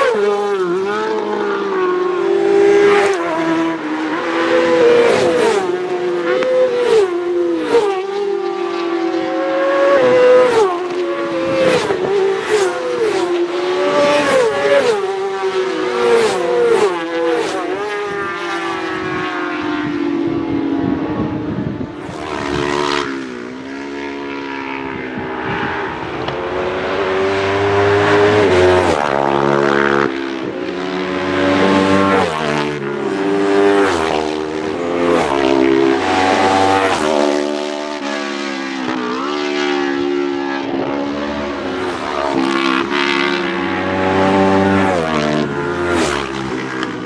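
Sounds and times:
motorcycles revving past: 0.0s - 47.0s.

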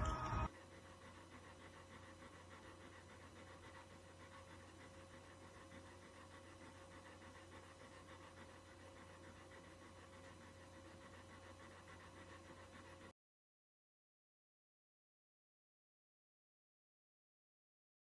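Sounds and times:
low electrical hum: 0.0s - 12.8s
dog panting faintly: 0.0s - 13.2s.

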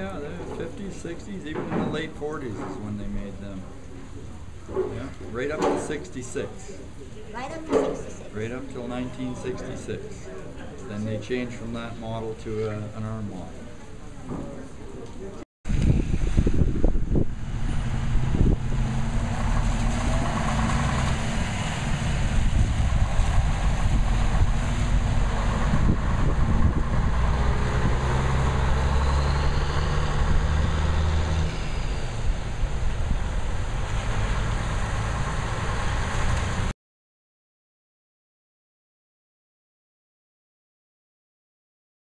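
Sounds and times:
truck diesel engine passing: 15.9s - 36.7s.

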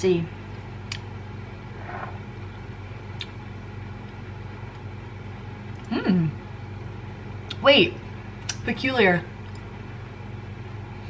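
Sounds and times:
low electrical hum: 0.0s - 11.0s
woman humming hmm: 5.8s - 6.4s.

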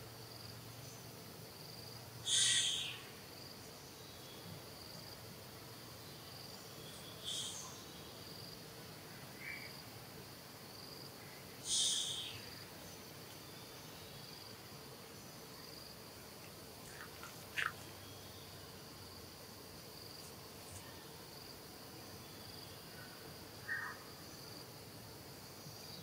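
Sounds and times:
insects trilling: 0.0s - 26.0s
loud high-pitched calls: 2.2s - 3.1s, 11.6s - 12.5s, 16.9s - 18.0s.

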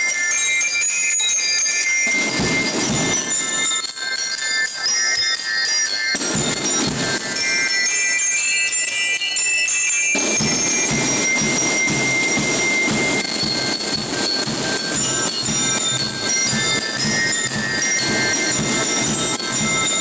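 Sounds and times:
bell lyres chiming: 0.0s - 20.0s
snare and bass drums: 2.1s - 3.6s, 6.2s - 7.5s, 10.2s - 20.0s.

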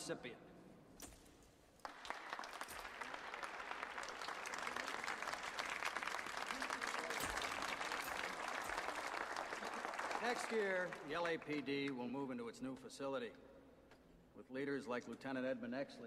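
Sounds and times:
audience applauding: 1.8s - 12.0s.

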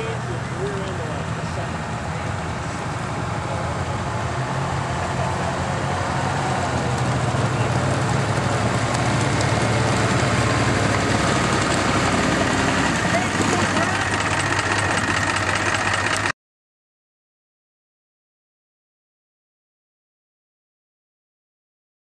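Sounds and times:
snow vehicle engine running: 0.0s - 16.3s.

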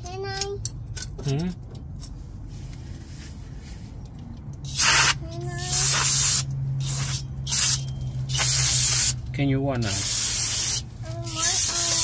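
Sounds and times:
aerosol can spraying: 4.7s - 9.2s, 9.9s - 12.0s.

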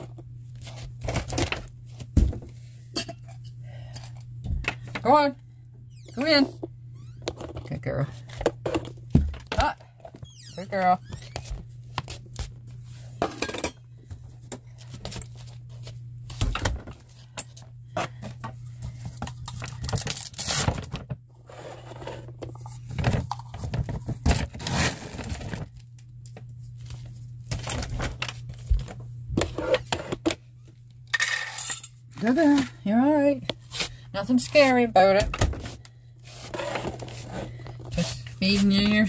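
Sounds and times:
steady low hum: 0.0s - 39.0s
dishes and spoon clinking: 2.9s - 3.5s, 31.2s - 32.0s.

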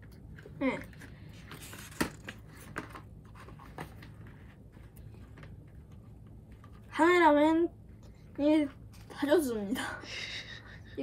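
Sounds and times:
paper rustling and crackling: 0.4s - 5.7s.

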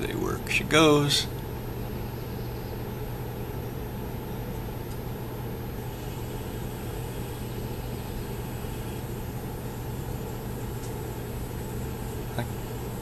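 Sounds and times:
air handler blower hum: 0.0s - 13.0s
rush of air through ducts: 5.7s - 13.0s.

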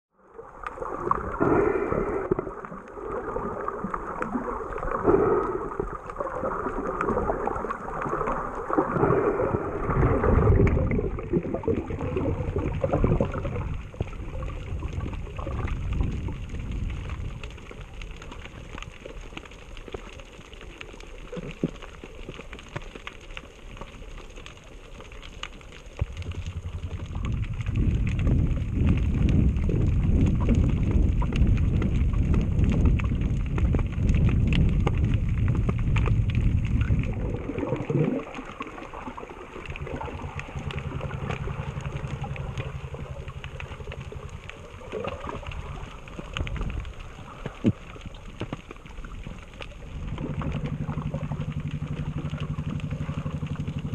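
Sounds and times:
gurgling underwater water: 0.1s - 53.9s
low rumble: 0.2s - 20.0s, 23.9s - 53.9s
faint clicks: 10.6s - 53.9s.

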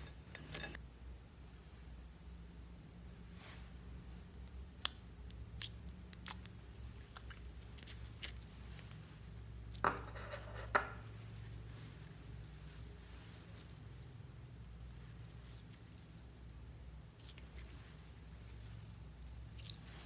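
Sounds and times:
slime squelches: 4.4s - 9.8s, 11.2s - 20.0s.

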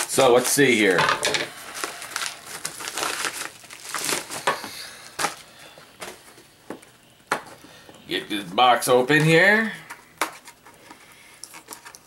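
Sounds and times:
packaging crinkling: 0.0s - 6.4s.

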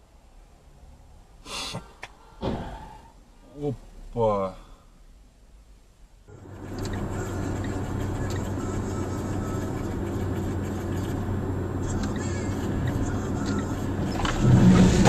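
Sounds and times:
low engine hum: 2.1s - 15.0s
tyre and road noise: 6.3s - 15.0s.

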